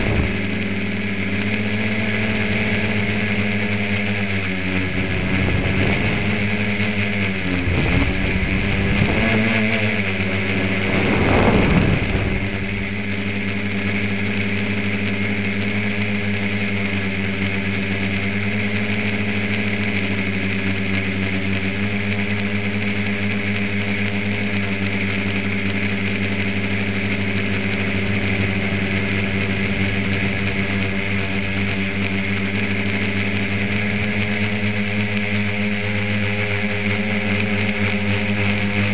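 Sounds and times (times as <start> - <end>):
drone propellers whirring: 0.0 - 38.9
rush of air: 10.6 - 12.9.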